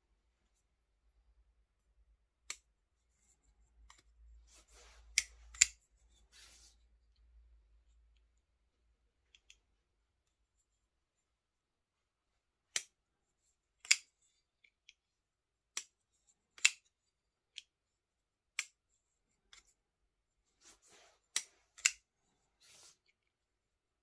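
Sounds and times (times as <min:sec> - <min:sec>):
soft scraping: 0:04.4 - 0:05.2, 0:06.0 - 0:06.9, 0:20.5 - 0:21.3, 0:22.2 - 0:23.2
knife blade metallic clicks: 0:05.2 - 0:05.8, 0:21.4 - 0:22.0.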